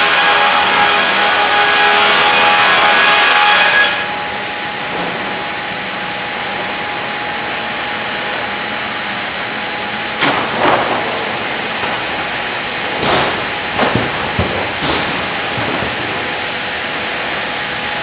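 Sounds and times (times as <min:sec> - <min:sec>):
loud machinery clatters: 0:00.0 - 0:18.0
sawmill machinery droning: 0:00.0 - 0:18.0.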